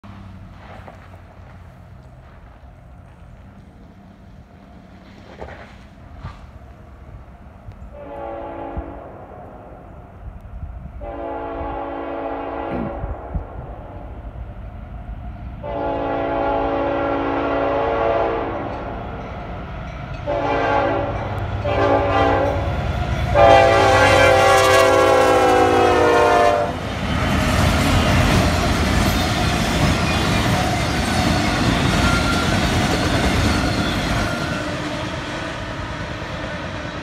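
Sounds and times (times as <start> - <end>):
locomotive rumble: 0.0 - 37.0
train air horn blasts: 7.9 - 9.7, 11.0 - 14.0, 15.6 - 18.9, 20.2 - 26.8.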